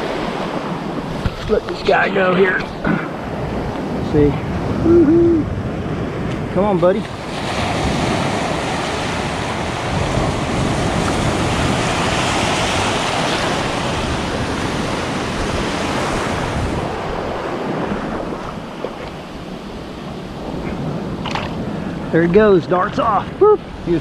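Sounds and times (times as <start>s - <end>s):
wind on microphone: 0.0s - 24.0s
small waves breaking: 5.5s - 24.0s.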